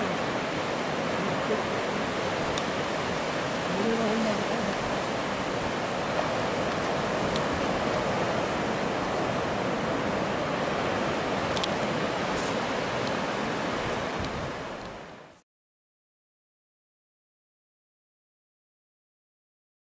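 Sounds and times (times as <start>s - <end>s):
ocean surf breaking: 0.0s - 15.4s.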